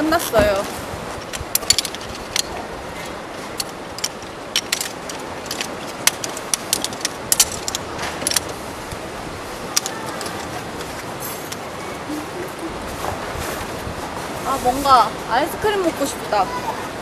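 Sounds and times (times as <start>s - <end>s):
steady outdoor hiss: 0.0s - 17.0s
metal tripod clicking and clinking: 1.2s - 8.6s, 9.8s - 10.6s.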